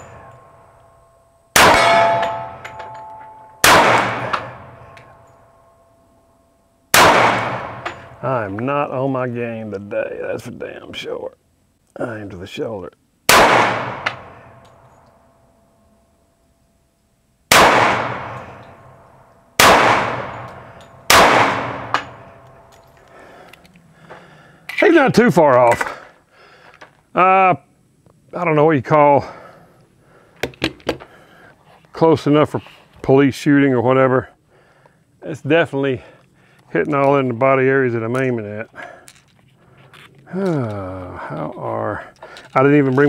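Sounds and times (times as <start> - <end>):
metallic ringing: 0.0 - 3.7
pistol gunshots: 1.5 - 2.7, 3.6 - 4.9, 6.9 - 8.1, 13.3 - 14.4, 17.5 - 18.6, 19.6 - 22.3.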